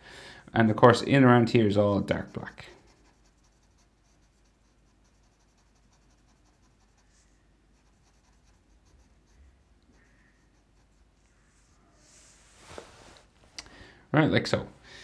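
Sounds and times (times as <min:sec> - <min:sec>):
felt-tip marker scratching paper: 0:02.2 - 0:11.3.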